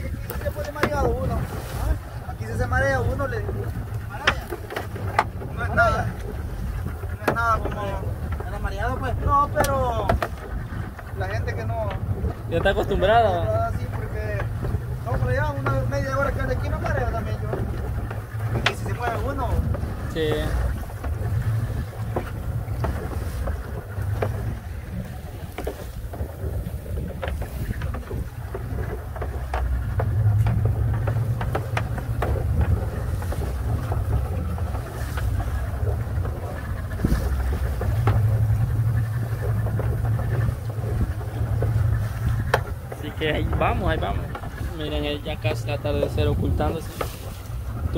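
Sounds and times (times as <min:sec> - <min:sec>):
boat motor drone: 0:00.0 - 0:47.9
water splashing against hull: 0:00.0 - 0:47.9
wind on microphone: 0:00.0 - 0:47.9
short knocks: 0:13.7 - 0:47.9.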